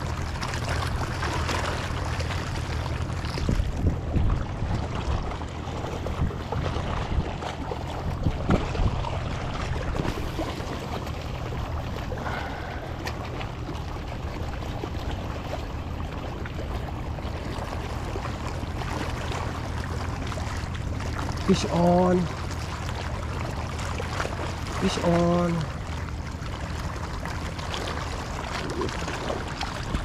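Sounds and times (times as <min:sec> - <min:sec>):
waves splashing against rocks: 0:00.0 - 0:30.0
wind rumbling on microphone: 0:02.9 - 0:16.1, 0:27.9 - 0:30.0.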